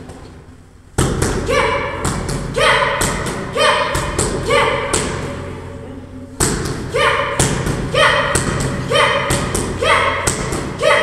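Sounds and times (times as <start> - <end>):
child shouting: 1.5 - 5.2, 6.9 - 11.0.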